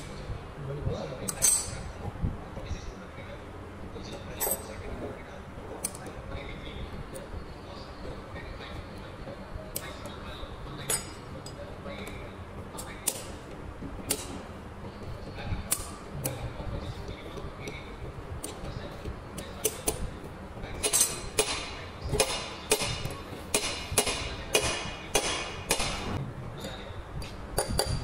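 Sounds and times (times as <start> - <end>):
metal tools clicking on metal: 1.3 - 1.8, 4.4 - 4.8.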